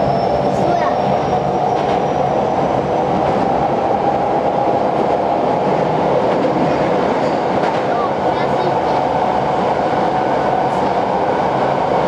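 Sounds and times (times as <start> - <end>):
subway train running in tunnel: 0.0 - 12.0.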